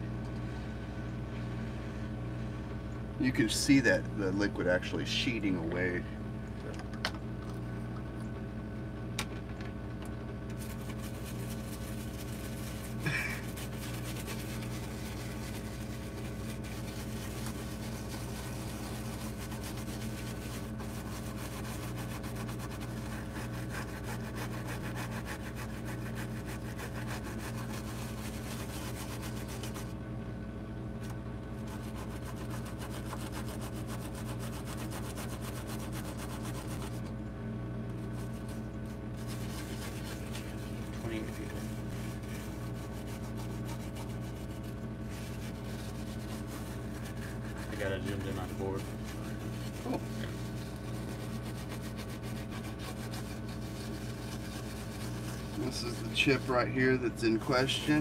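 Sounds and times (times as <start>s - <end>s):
steady low hum: 0.0s - 58.0s
toothbrush scrubbing circuit board: 10.6s - 29.9s, 31.6s - 37.0s, 39.2s - 56.6s.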